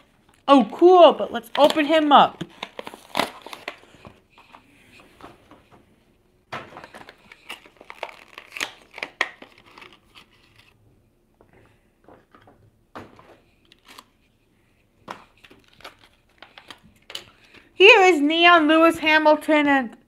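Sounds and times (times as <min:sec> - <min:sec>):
plastic packaging crinkling and tearing: 0:01.5 - 0:04.0, 0:06.6 - 0:10.8, 0:13.6 - 0:14.2, 0:15.2 - 0:17.7.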